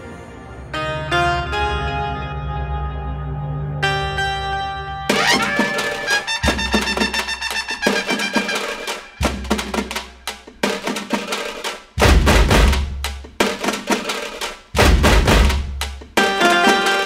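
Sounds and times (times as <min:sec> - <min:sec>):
drum and percussion beat: 0:05.1 - 0:17.0.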